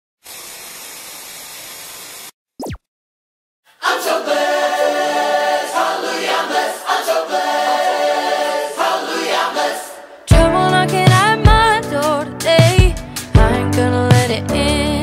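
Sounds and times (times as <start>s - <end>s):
choir singing held chords: 3.7s - 10.7s.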